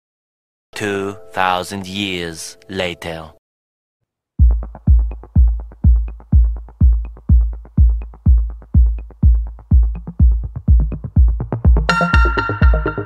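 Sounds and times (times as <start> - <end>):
heavy kick drum: 4.4 - 13.0
electronic dance music: 4.5 - 13.0
synth chord: 11.9 - 13.0.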